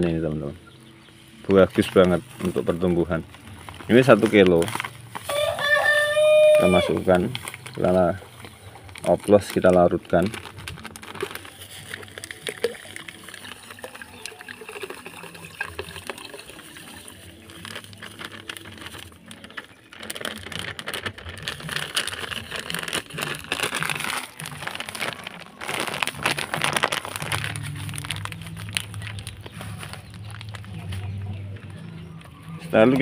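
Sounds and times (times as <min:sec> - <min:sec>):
plastic bag crinkling: 0:01.4 - 0:33.0
granules pouring into water: 0:09.0 - 0:30.7
water splashing and sloshing: 0:10.3 - 0:19.3.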